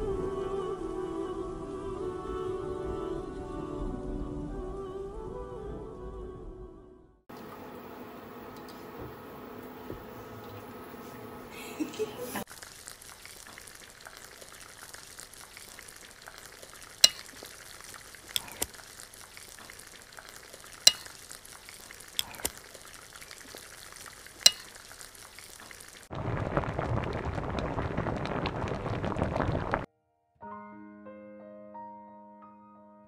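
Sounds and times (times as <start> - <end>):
saucepan boiling and bubbling: 7.3 - 29.9
metal ladle clinking on pots: 17.0 - 17.4, 20.9 - 21.1, 24.5 - 24.7.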